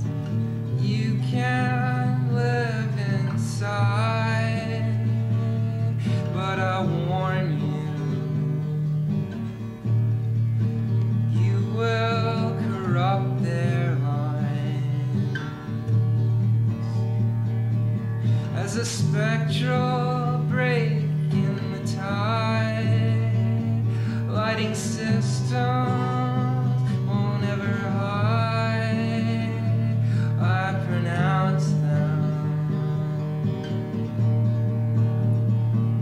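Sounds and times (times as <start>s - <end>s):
guitar: 0.0s - 36.0s
person singing: 0.7s - 8.5s, 11.3s - 15.7s, 18.4s - 33.9s.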